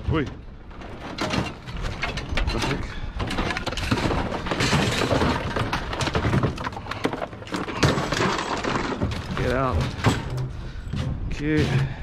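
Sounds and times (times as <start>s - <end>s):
scrap metal clattering onto a pile: 0.8s - 6.7s.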